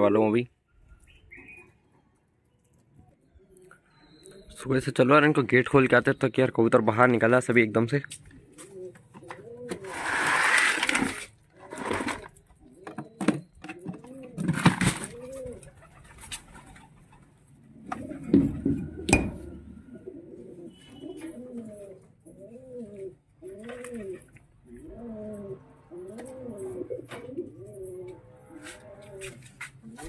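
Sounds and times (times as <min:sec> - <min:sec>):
pigeons cooing: 0:08.3 - 0:30.0.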